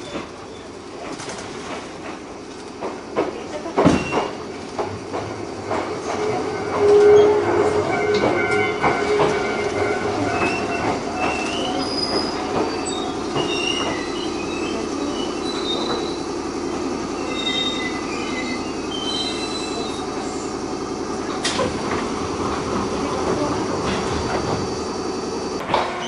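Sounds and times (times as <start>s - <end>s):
train running noise and hum: 0.0s - 26.0s
high-pitched brake squeals: 6.2s - 16.3s, 17.1s - 20.5s.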